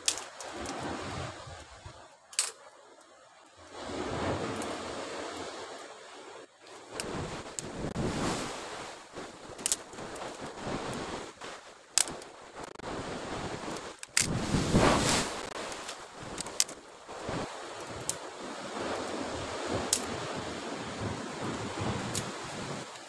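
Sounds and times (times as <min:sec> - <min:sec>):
wind on microphone: 0:00.0 - 0:02.1, 0:06.8 - 0:23.0
surf washing against rocks: 0:00.0 - 0:02.5, 0:03.6 - 0:23.0.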